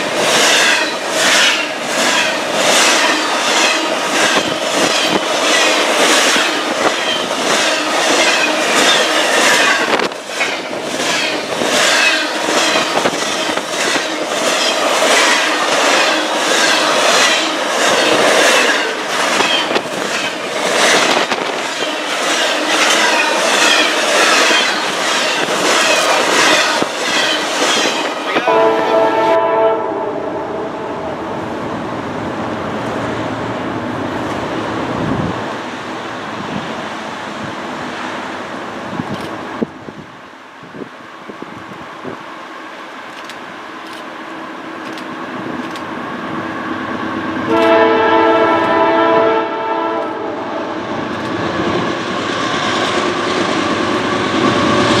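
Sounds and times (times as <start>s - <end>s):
train wheels clacking over rail joints: 0.0s - 28.6s
train horn: 28.4s - 31.2s, 47.5s - 50.9s.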